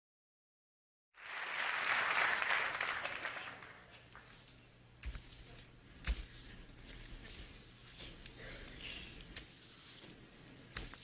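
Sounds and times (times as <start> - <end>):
audience applause: 1.2 - 4.1.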